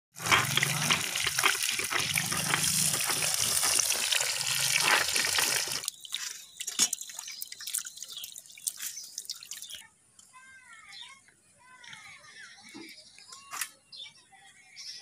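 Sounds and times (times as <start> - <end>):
fish sizzling in hot oil: 0.1 - 9.7
wet squelches and drips: 0.6 - 9.8.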